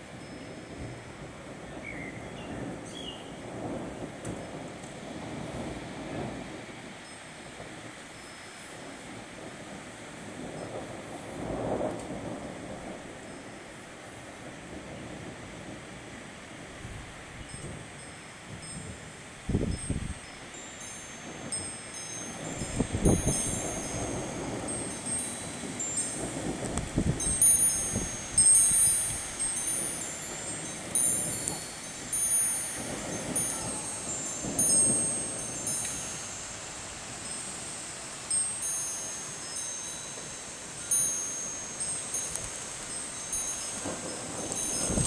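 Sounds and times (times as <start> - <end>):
wind gusts on microphone: 0.0 - 45.0
wind chime ringing: 8.2 - 8.7, 17.5 - 18.9, 19.7 - 45.0.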